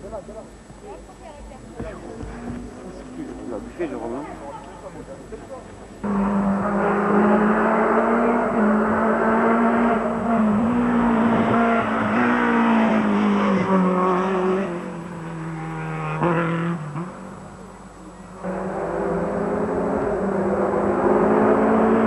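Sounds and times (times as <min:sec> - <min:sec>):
rally car engine revving: 0:06.0 - 0:22.0.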